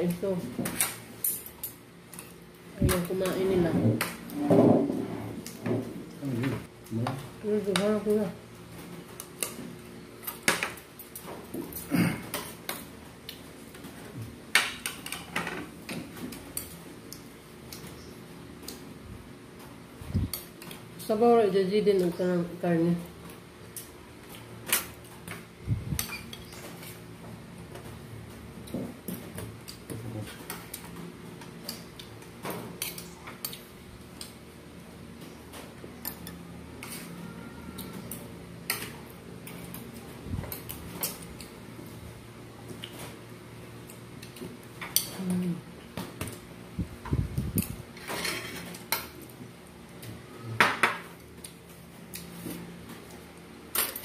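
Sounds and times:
cutlery scraping a plate: 47.9s - 49.1s.

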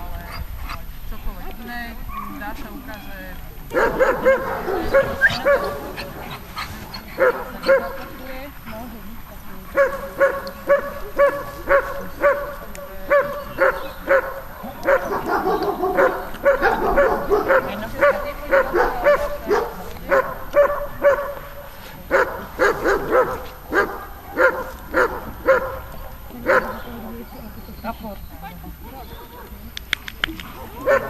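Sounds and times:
dog barking: 2.0s - 2.6s, 3.7s - 6.5s, 7.1s - 8.2s, 9.7s - 27.2s, 30.8s - 31.0s.

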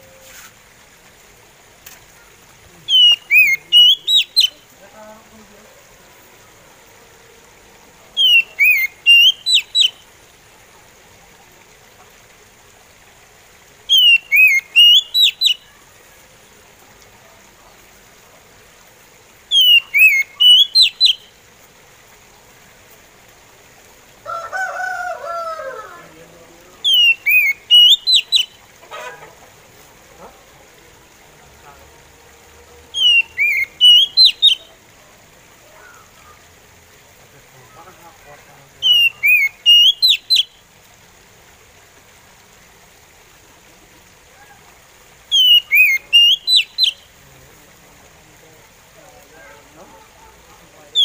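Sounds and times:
bird singing whistled phrases: 2.9s - 4.6s, 8.2s - 10.0s, 13.9s - 15.7s, 19.5s - 21.3s, 26.8s - 28.6s, 33.0s - 34.7s, 38.8s - 40.6s, 45.3s - 47.0s.

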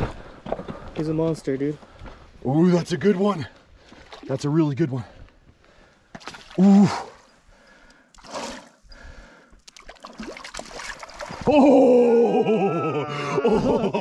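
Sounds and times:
fish splashing in water: 9.7s - 11.5s.

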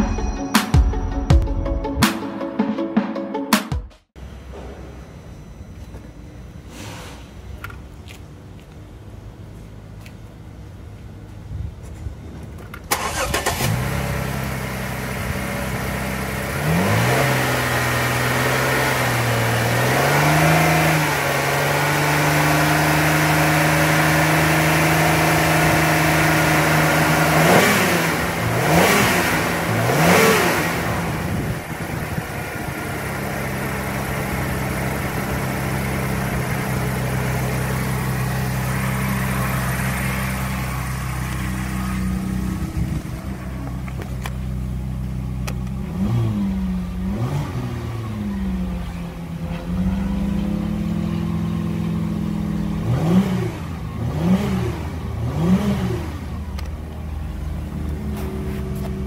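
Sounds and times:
car engine starting and idling: 4.1s - 59.0s
car engine revving: 12.9s - 59.0s.

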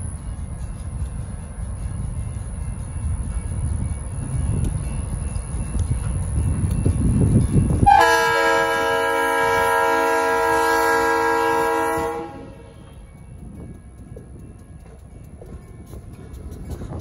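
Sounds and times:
train rumbling: 0.0s - 17.0s
locomotive air horn blast: 7.8s - 12.9s.

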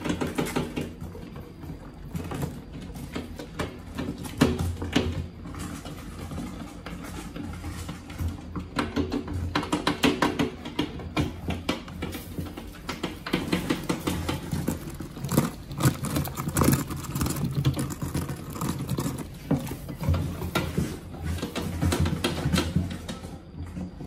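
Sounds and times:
rats scrambling and scratching: 0.0s - 24.0s.

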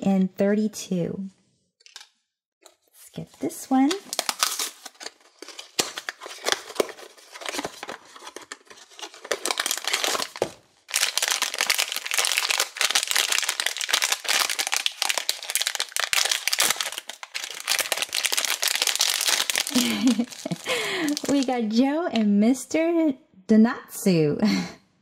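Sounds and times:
foil bag crinkling: 3.8s - 21.7s
cardboard box being opened: 4.1s - 10.6s.

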